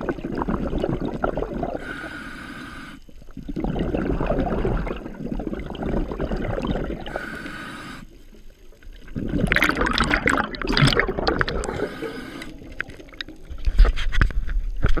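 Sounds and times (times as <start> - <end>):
bubbling exhaust underwater: 0.0 - 13.9
regulator hissing inhale: 1.8 - 3.2, 7.1 - 8.4, 11.6 - 12.8.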